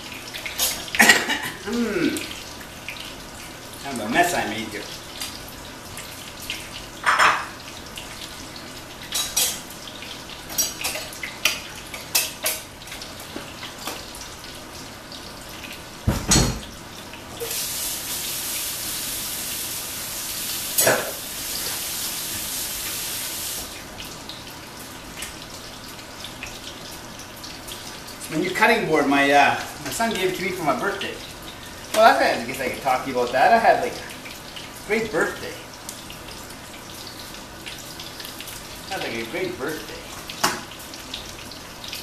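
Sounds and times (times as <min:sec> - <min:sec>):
kitchen tap running: 0:00.0 - 0:42.0
dishes clattering in a sink: 0:00.5 - 0:01.6, 0:07.0 - 0:07.6, 0:09.1 - 0:09.6, 0:16.1 - 0:16.7.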